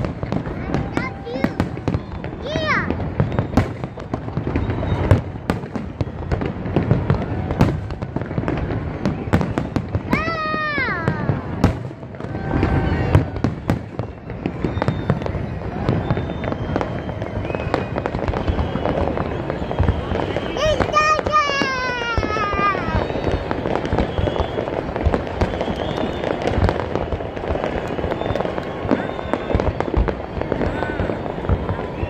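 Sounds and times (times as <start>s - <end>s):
falling firework squeal: 0.0s - 32.0s
fireworks bangs and crackling: 0.0s - 32.0s.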